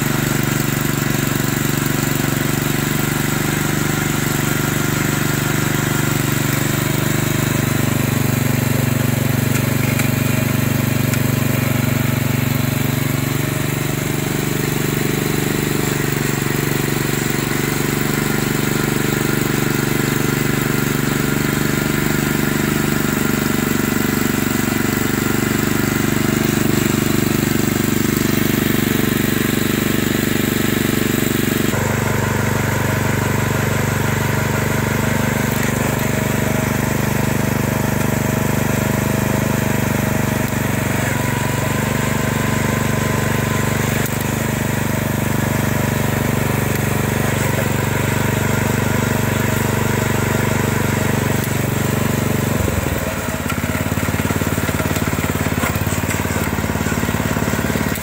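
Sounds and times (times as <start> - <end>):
tiller engine running: 0.0 - 58.0.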